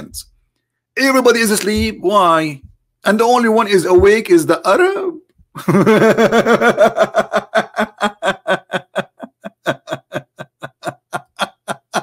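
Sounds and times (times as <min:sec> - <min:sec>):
man laughing hard: 0:05.6 - 0:12.0.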